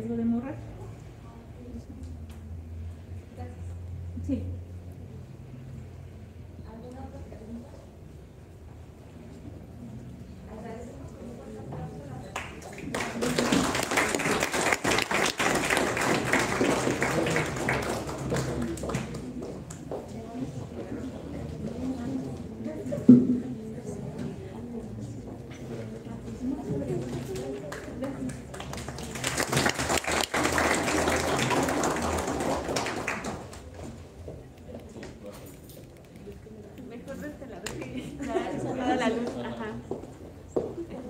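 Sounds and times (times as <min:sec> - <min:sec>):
audience applauding: 0:12.4 - 0:19.8, 0:27.7 - 0:33.8.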